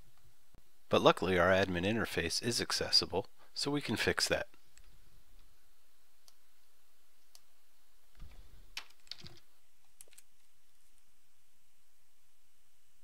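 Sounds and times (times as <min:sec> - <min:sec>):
steady faint hiss: 0:00.0 - 0:13.0
faint keyboard keystrokes: 0:08.2 - 0:10.5.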